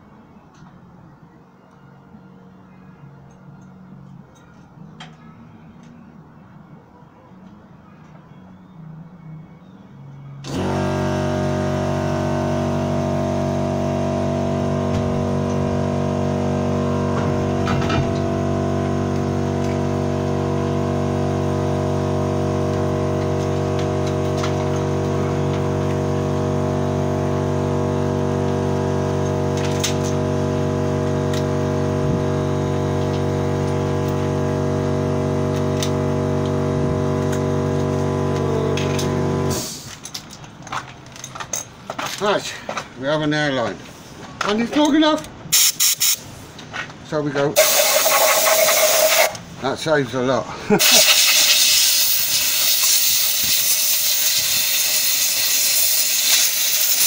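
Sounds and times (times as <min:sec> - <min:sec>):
air compressor droning: 0:10.4 - 0:40.0, 0:47.6 - 0:49.4, 0:50.7 - 0:57.0.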